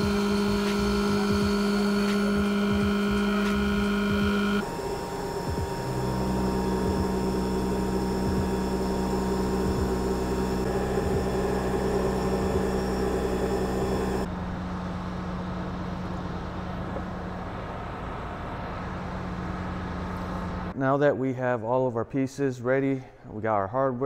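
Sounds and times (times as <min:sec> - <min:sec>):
milling machine whine: 0:00.0 - 0:14.3
low machine hum: 0:00.0 - 0:20.7.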